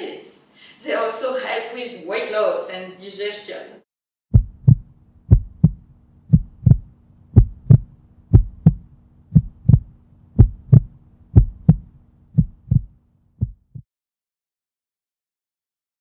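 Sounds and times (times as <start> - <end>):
heartbeat double thump: 4.3 - 13.8
faint steady hum: 4.4 - 13.0.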